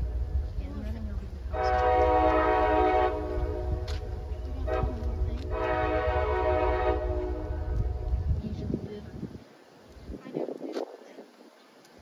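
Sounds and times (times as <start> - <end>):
low rumble: 0.0 - 9.4
locomotive air horn blasts: 1.5 - 3.9, 4.6 - 7.9.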